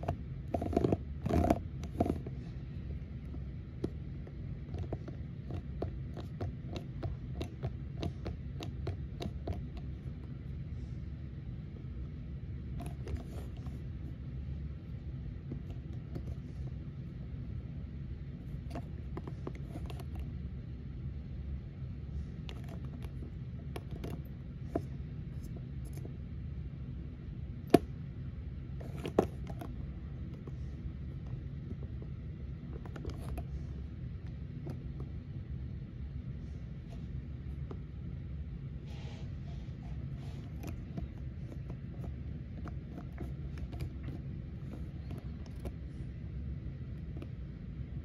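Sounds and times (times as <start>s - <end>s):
plastic toy clicking and rubbing: 0.0s - 2.5s, 3.2s - 10.4s, 12.7s - 14.0s, 18.4s - 20.3s, 22.4s - 26.1s, 28.7s - 30.6s, 31.3s - 33.8s, 39.9s - 46.0s
steady low hum: 0.0s - 48.0s.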